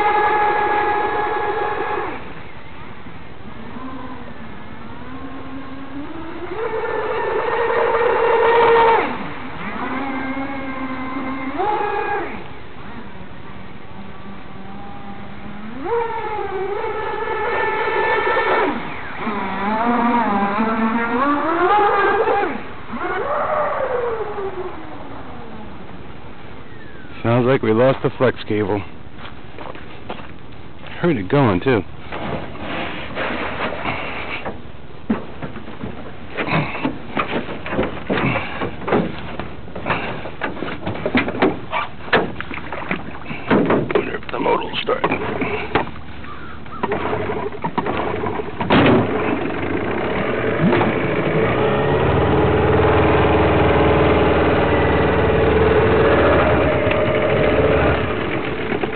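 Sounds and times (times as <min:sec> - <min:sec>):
electric boat motor whining: 0:03.6 - 0:13.2, 0:14.0 - 0:24.7, 0:47.0 - 0:58.9
oars knocking and creaking: 0:29.2 - 0:58.9
water splashing: 0:41.6 - 0:46.3.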